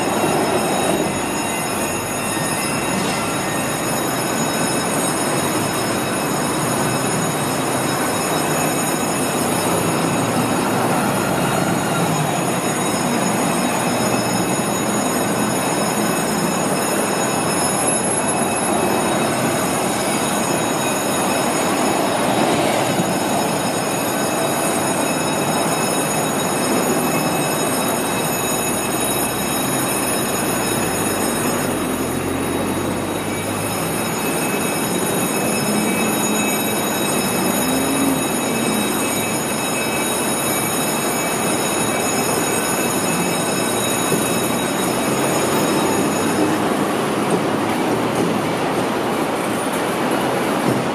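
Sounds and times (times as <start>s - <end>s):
vehicles passing: 0.0s - 25.7s, 28.8s - 39.6s, 42.9s - 50.9s.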